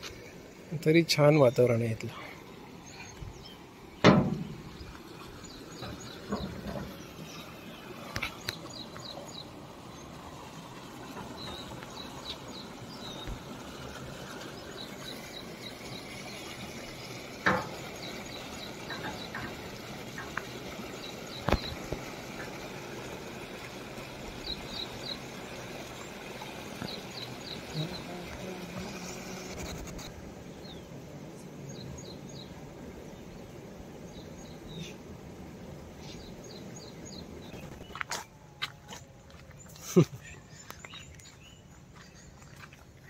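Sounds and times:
birds chirping: 0.0 - 35.1, 35.9 - 43.0
water rushing from outlet: 0.0 - 43.0
sharp knocks: 4.0 - 4.6, 17.4 - 17.8.

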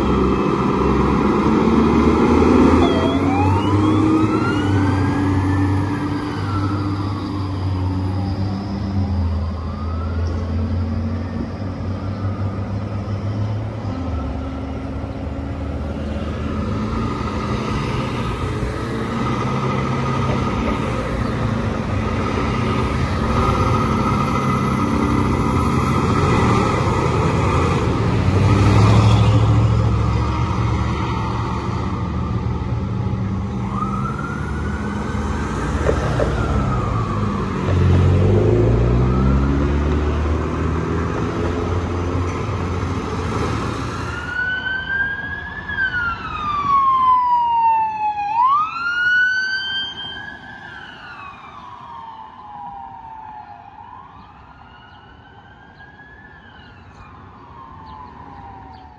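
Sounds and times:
siren wailing: 0.0 - 14.9, 28.8 - 40.2, 43.7 - 58.9
fire truck engine: 0.0 - 58.9.

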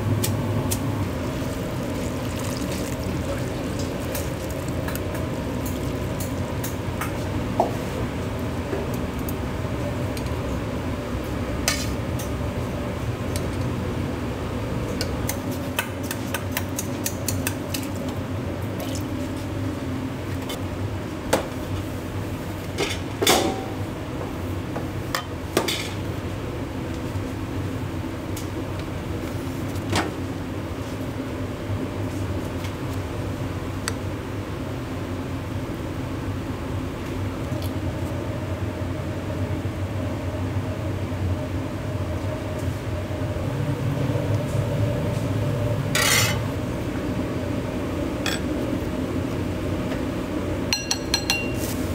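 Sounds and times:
steady background hum: 0.0 - 51.9
utensils clinking on dishes and pans: 46.0 - 46.4, 50.7 - 51.9.

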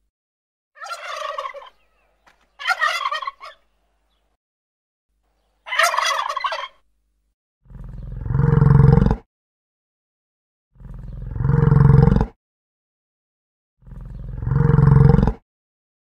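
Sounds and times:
turkeys gobbling: 0.8 - 4.3, 5.6 - 6.8
deep long animal call: 7.6 - 9.3, 10.8 - 12.3, 13.8 - 15.3.

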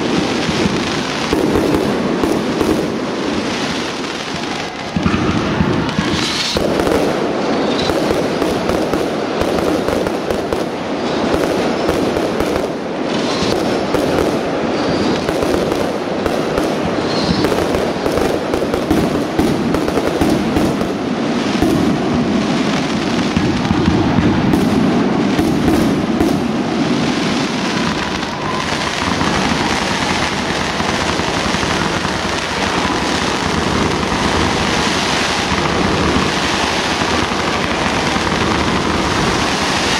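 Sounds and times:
fireworks bursting and crackling: 0.0 - 39.9.

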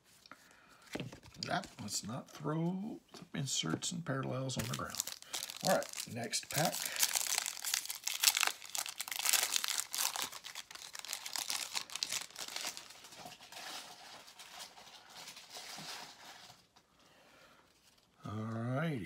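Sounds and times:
wrapper tearing and crinkling: 4.6 - 16.5.

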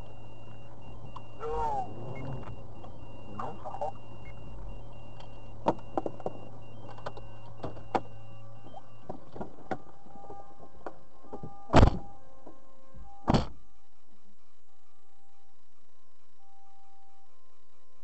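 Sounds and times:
car engine humming: 0.0 - 17.5
clicks and knocks inside car: 5.6 - 12.6.

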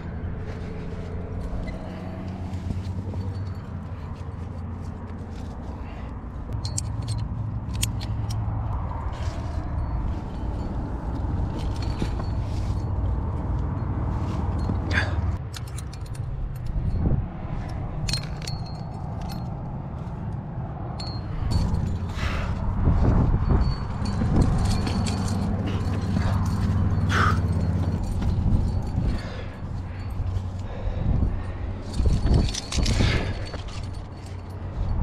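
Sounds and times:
climbing gear clinking and jangling: 0.0 - 35.0
wind buffeting microphone: 16.2 - 35.0.

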